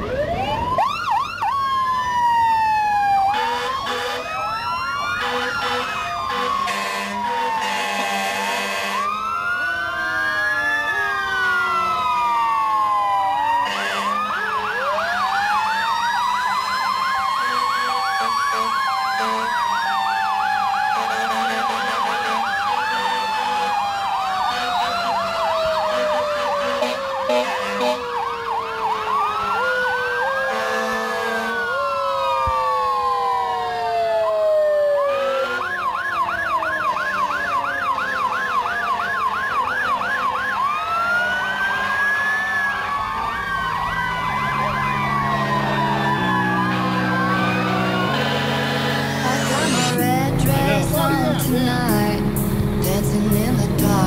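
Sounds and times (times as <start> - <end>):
fire engine sirens wailing: 0.0 - 54.0
horn blasts: 3.3 - 4.4, 5.2 - 9.1, 13.6 - 14.2, 17.4 - 19.5, 20.9 - 23.7, 25.8 - 28.1, 30.5 - 31.6, 35.1 - 35.7, 45.5 - 54.0.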